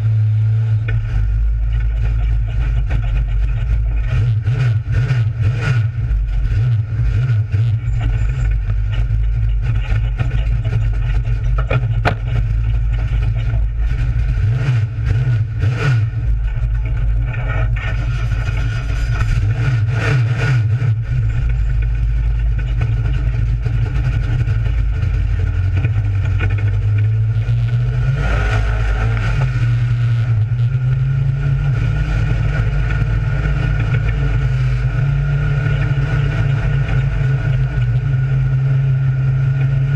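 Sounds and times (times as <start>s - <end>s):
race car engine running: 0.0s - 39.9s
sharp knocks: 11.5s - 12.5s.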